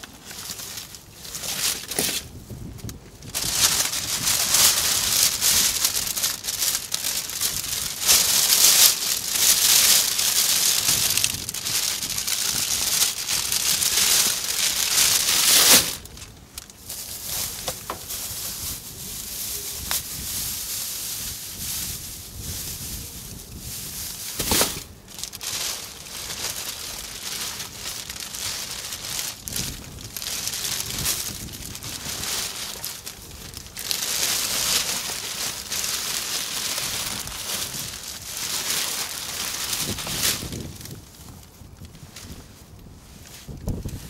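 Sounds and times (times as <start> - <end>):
plastic bags crinkling: 0.0 - 42.3.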